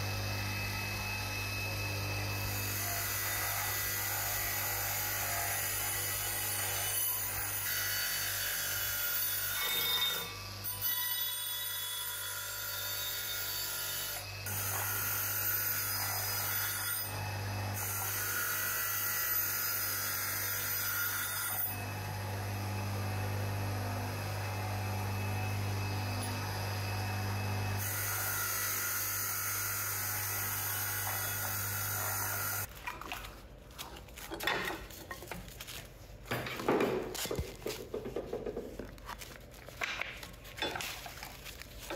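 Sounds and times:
bench grinder motor humming: 21.7s - 32.7s.

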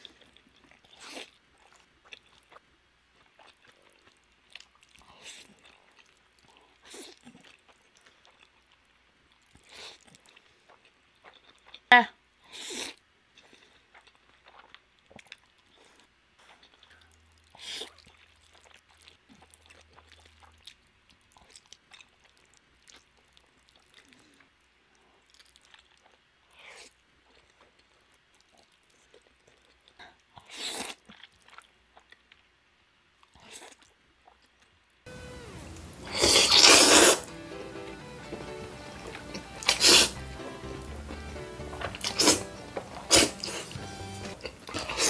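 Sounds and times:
slurping noodles: 0.0s - 1.4s, 30.4s - 31.0s, 35.9s - 37.4s, 39.0s - 40.4s, 41.6s - 45.0s
chewing and mouth smacks: 0.0s - 11.9s, 12.7s - 32.6s, 33.2s - 35.0s, 38.3s - 45.0s
background music: 35.1s - 45.0s.

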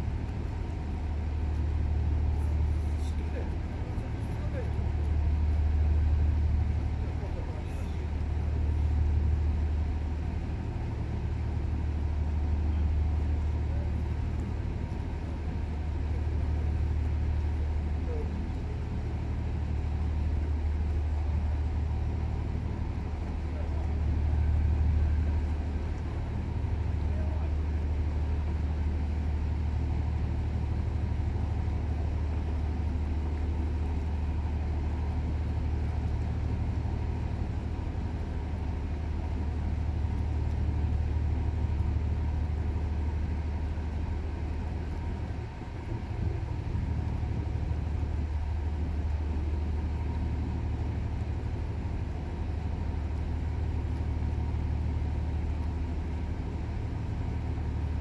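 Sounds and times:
ship diesel engine drone: 0.0s - 58.0s.

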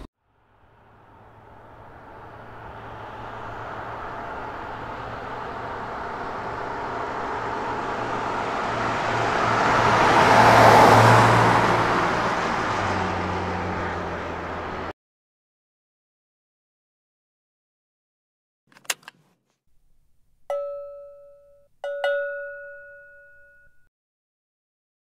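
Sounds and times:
car driving past: 0.3s - 14.9s.

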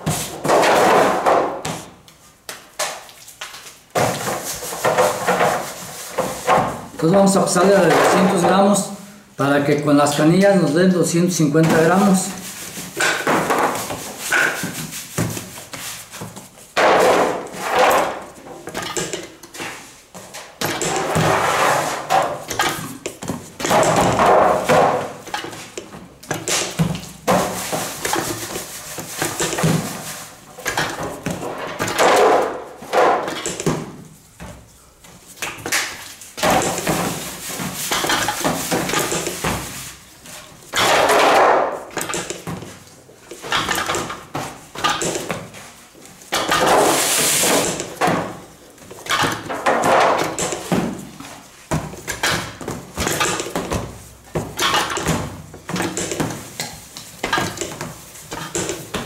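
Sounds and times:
dough slapping on metal table: 11.6s - 34.2s, 35.3s - 59.0s.

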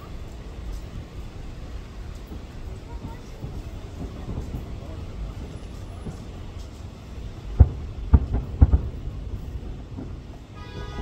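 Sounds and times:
steady low rumble: 0.0s - 11.0s
distant firework booms: 7.4s - 11.0s.

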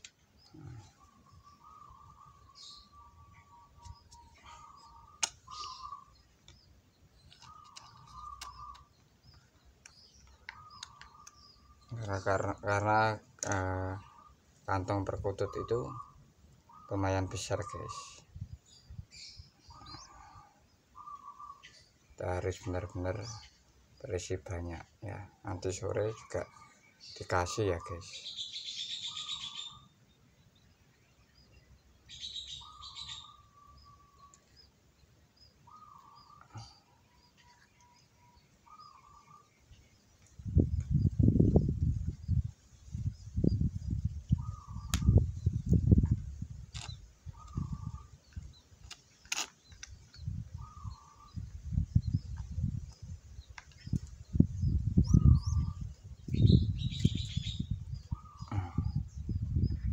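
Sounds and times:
sharp clicks: 5.2s - 5.7s
dove chick cheeping: 32.1s - 34.8s, 53.8s - 59.9s.

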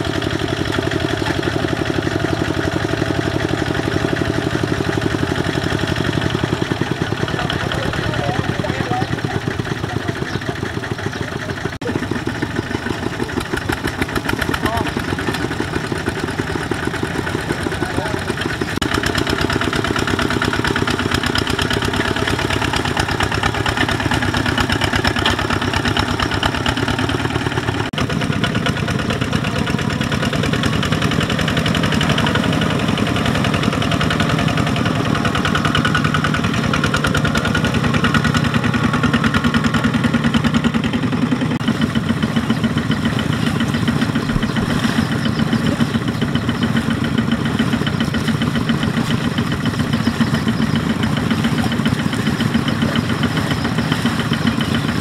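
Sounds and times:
diesel engine running under load: 0.0s - 55.0s.

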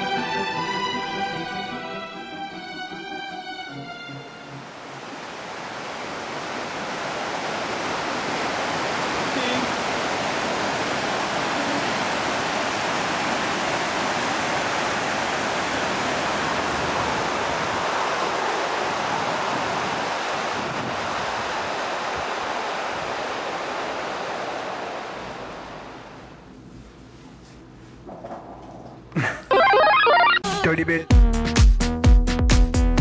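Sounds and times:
river rushing over rocks: 4.7s - 26.0s.

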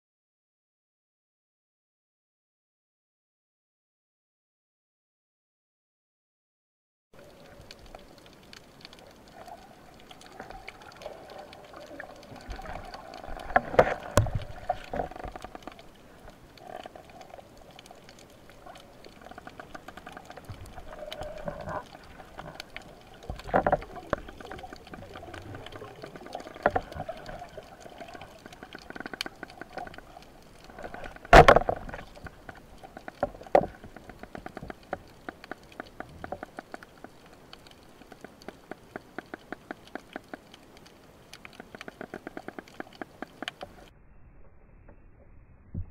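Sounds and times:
muffled underwater noise: 7.2s - 34.8s.

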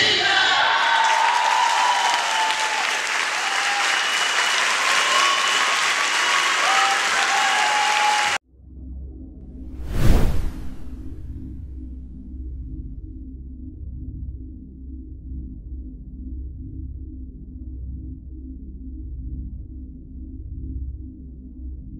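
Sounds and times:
audience applauding: 0.6s - 8.4s
low hum: 9.0s - 21.0s.

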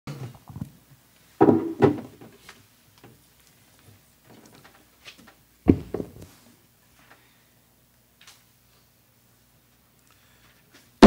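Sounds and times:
knocks and thumps: 1.4s - 2.3s, 5.7s - 6.3s.

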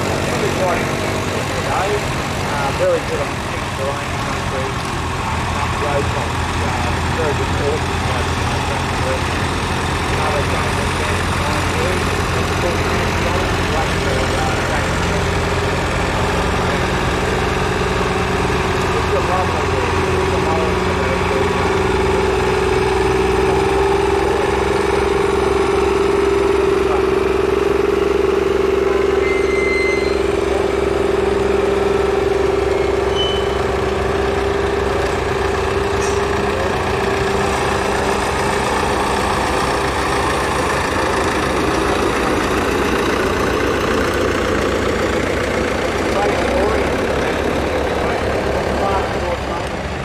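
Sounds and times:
tractor engines running: 0.0s - 50.0s.

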